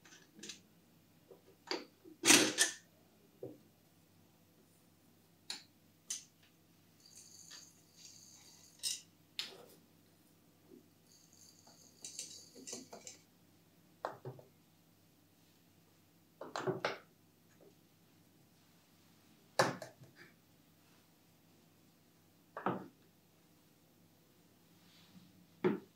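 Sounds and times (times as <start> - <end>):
spoon clinking on glass: 11.1 - 13.2.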